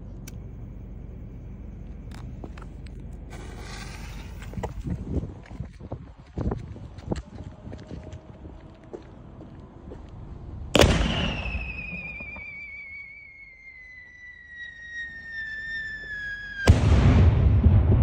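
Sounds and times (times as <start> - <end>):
loud firework bang: 10.8 - 13.0, 15.4 - 18.0
falling whistle of firework shell: 10.8 - 17.4
mortar launch thump: 16.7 - 18.0.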